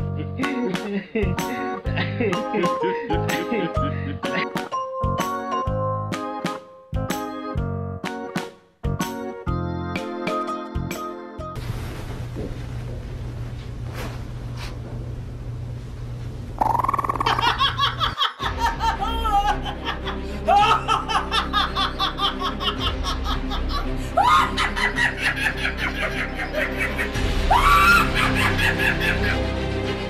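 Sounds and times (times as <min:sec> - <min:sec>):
background music: 0:00.0 - 0:11.6, 0:18.2 - 0:30.0
woman laughing hard: 0:00.2 - 0:04.6, 0:17.2 - 0:29.4.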